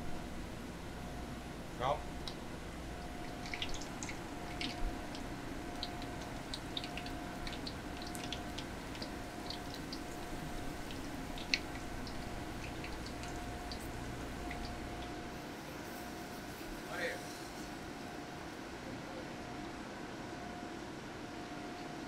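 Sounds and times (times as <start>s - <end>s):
food deep-frying in oil: 2.1s - 17.6s.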